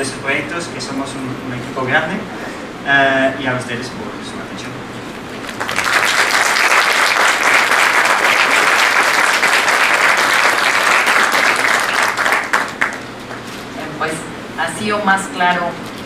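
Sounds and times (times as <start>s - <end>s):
audience applauding: 5.4s - 13.5s.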